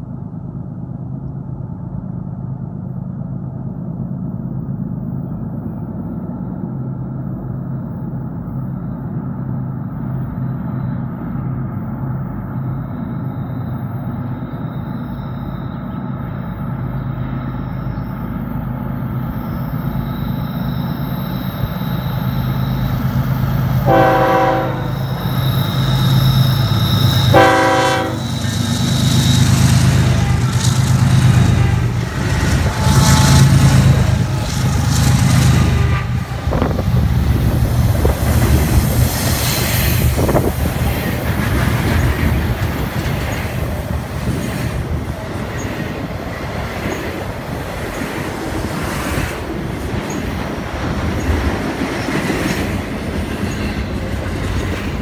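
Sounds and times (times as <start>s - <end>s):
train wheels clattering on rails: 20.8s - 55.0s
locomotive air horn blasts: 23.8s - 25.2s, 27.1s - 28.5s.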